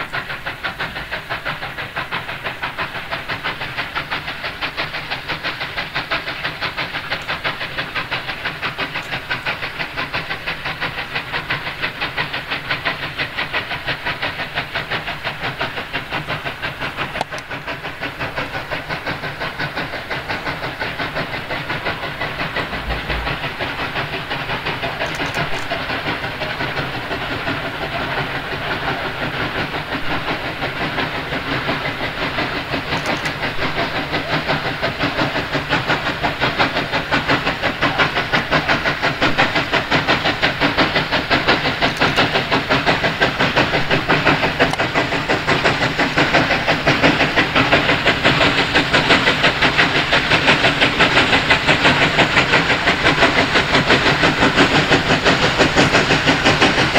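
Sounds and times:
steam hissing: 0.0s - 56.9s
steam locomotive exhaust beats: 0.0s - 56.9s.

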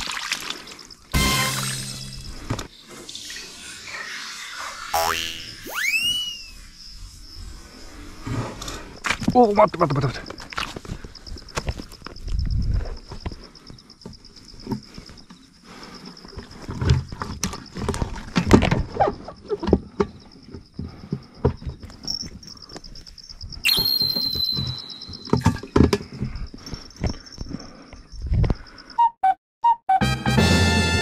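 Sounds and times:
pulsing high trill: 5.0s - 6.5s, 23.7s - 25.2s
brief sharp squeak: 5.7s - 6.6s, 23.7s - 25.4s.

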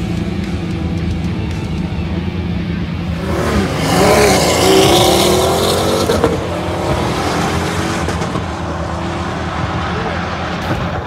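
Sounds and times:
sports cars accelerating hard: 3.1s - 11.0s.

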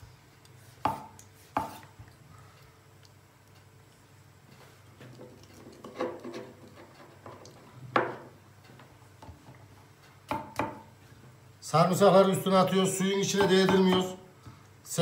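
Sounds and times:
knife chopping on cutting board: 0.8s - 1.8s, 13.3s - 14.2s.

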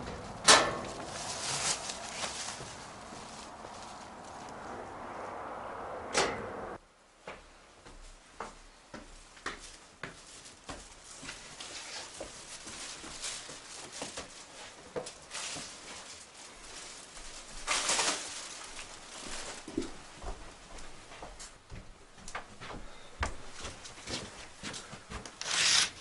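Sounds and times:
plastic bags rustling: 0.0s - 4.4s, 10.3s - 20.1s
footsteps on hard floor: 19.7s - 25.4s.

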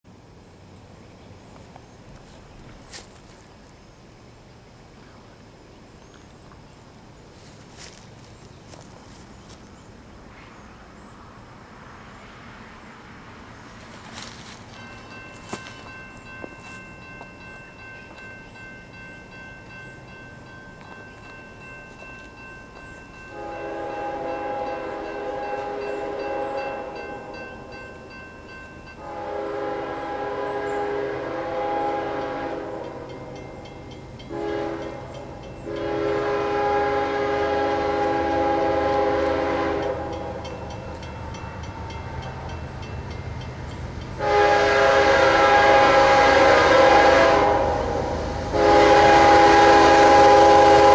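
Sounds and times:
locomotive air horn blasts: 23.3s - 27.4s, 29.0s - 33.4s, 34.3s - 40.6s, 44.2s - 50.9s.

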